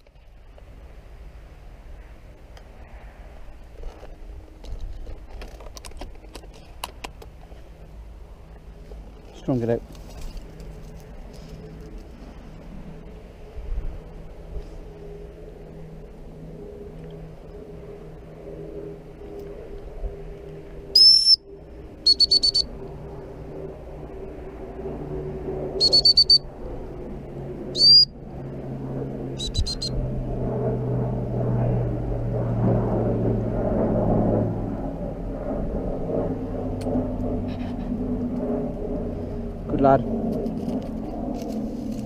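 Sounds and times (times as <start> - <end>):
steady low rumble: 0.0 - 42.0
dog whistle blasts and pips: 21.0 - 21.4, 22.1 - 22.7, 25.8 - 26.4, 27.8 - 28.1.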